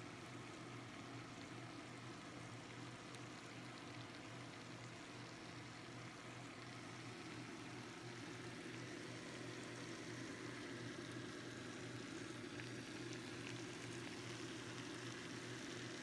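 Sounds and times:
noodles sizzling in a wok: 0.0 - 16.0.

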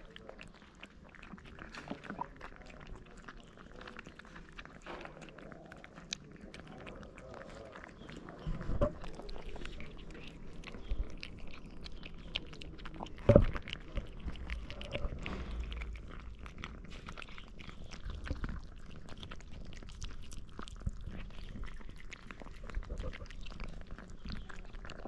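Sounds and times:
cats chewing wet food: 0.0 - 25.0
sharp thump: 15.3 - 15.6.

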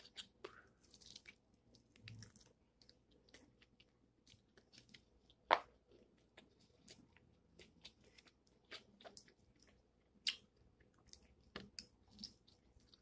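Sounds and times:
person chewing: 0.0 - 13.0.

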